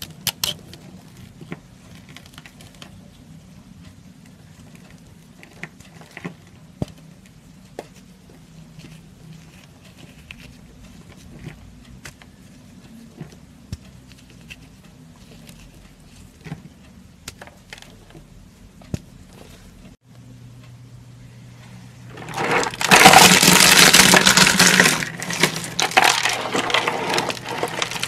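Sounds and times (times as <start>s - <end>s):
dry soap crumbling and crunching: 22.2s - 28.0s.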